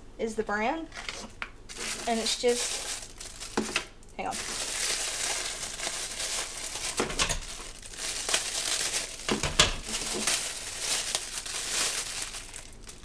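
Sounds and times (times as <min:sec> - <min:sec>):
plastic bags crinkling: 0:00.9 - 0:13.0.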